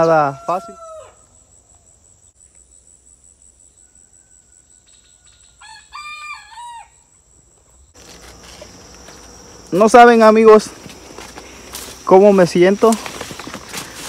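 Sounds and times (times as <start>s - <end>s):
rooster crowing: 0.0s - 1.3s, 3.9s - 7.1s
high-pitched insect drone: 7.9s - 14.0s.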